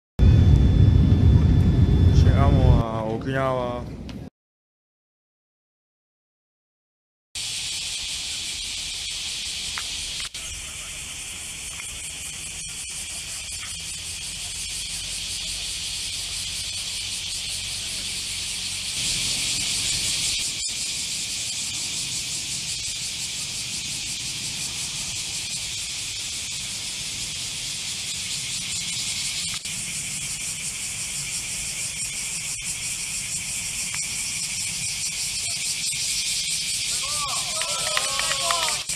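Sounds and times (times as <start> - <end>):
low rumble: 0.2 - 4.3
cicadas droning: 7.4 - 38.9.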